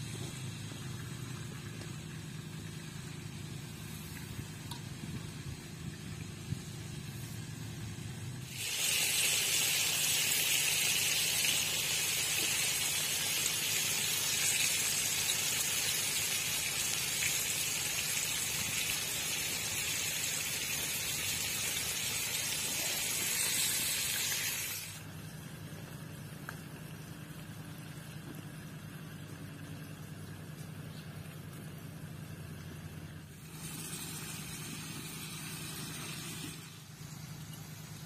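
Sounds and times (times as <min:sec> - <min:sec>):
chicken sizzling in frying oil: 0:00.0 - 0:25.0.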